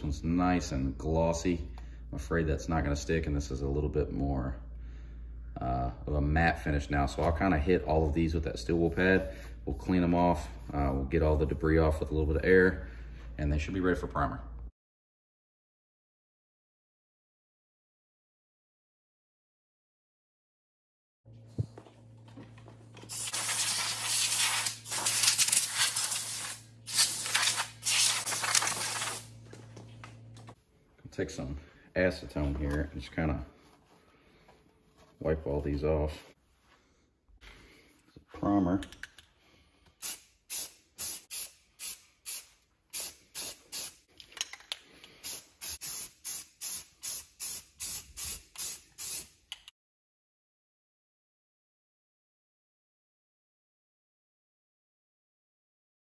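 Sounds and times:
steady low hum: 0.0s - 14.7s
aerosol spray can hissing: 23.1s - 29.3s, 40.0s - 44.0s, 45.2s - 49.4s
air blow gun hissing: 23.1s - 29.3s.

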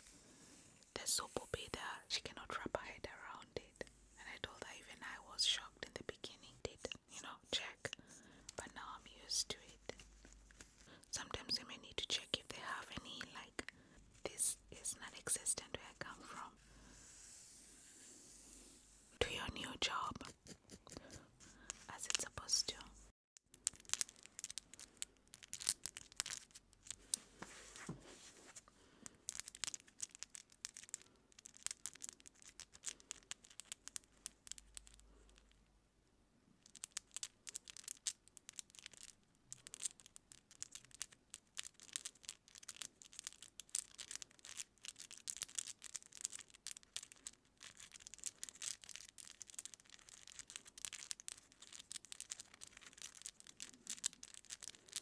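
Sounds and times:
nails scratching through hair: 14.3s - 23.0s.

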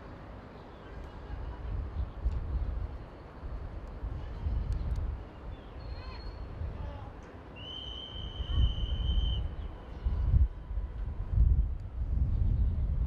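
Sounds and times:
low outdoor rumble: 0.0s - 13.0s
high-pitched whistle blast: 7.6s - 9.5s.

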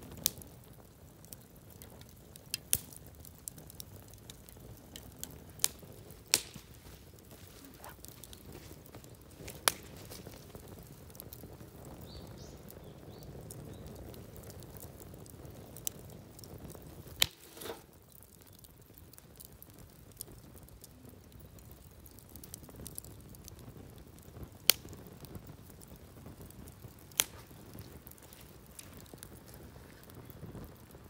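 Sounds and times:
firewood crackling: 0.0s - 31.0s
rush of flame: 0.0s - 31.0s
loud sharp pops: 5.6s - 6.9s, 9.4s - 10.2s, 17.2s - 18.0s, 27.1s - 27.9s.

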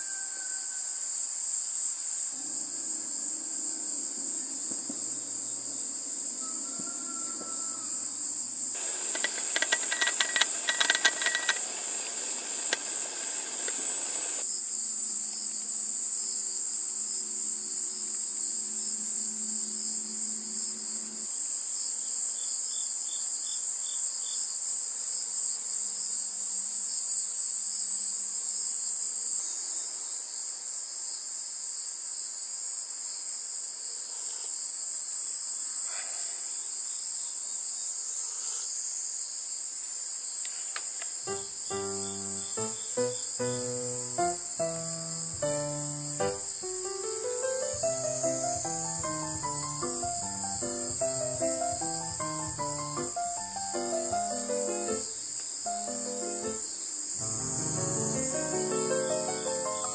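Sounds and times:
crickets chirping: 0.0s - 59.9s
sharp clicks and clatter: 9.0s - 11.7s.

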